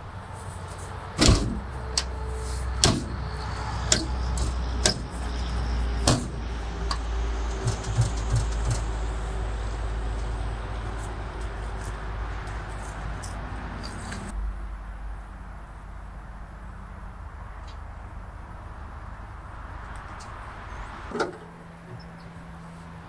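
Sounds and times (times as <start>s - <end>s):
steady low rumble: 0.0s - 23.0s
metal clanks and knocks: 1.2s - 9.2s.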